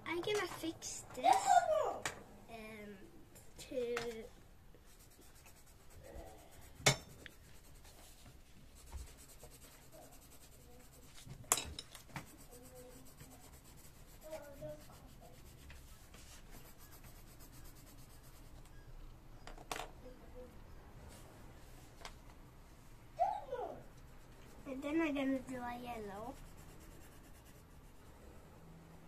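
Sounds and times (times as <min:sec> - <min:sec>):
pencil scratching on paper: 0:04.8 - 0:11.4, 0:12.0 - 0:18.8, 0:23.9 - 0:28.1.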